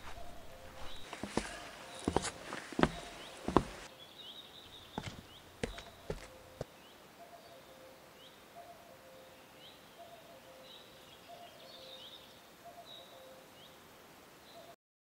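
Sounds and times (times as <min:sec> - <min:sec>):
birds chirping: 0:00.0 - 0:13.7.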